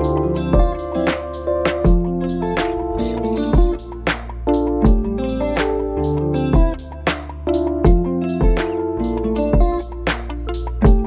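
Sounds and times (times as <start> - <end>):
plucked guitar notes: 0.0 - 11.0
sustained bass notes: 0.0 - 11.0.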